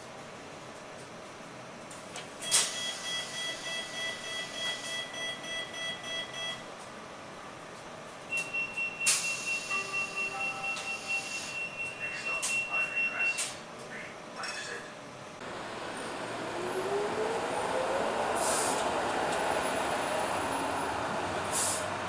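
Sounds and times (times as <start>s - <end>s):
two-tone beep pulsing: 2.6s - 6.6s, 8.3s - 13.4s
higher single-tone beep: 8.3s - 13.4s.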